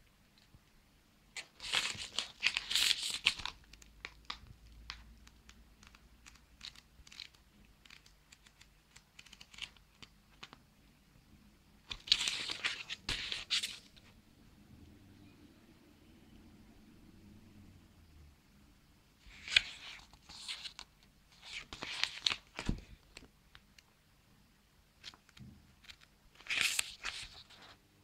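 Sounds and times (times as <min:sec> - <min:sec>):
book pages flipping: 0:01.4 - 0:10.6, 0:11.9 - 0:14.1, 0:19.3 - 0:23.9, 0:25.0 - 0:27.8
paper envelope crinkling: 0:01.4 - 0:10.6, 0:11.9 - 0:14.0, 0:19.3 - 0:23.3, 0:25.0 - 0:27.8.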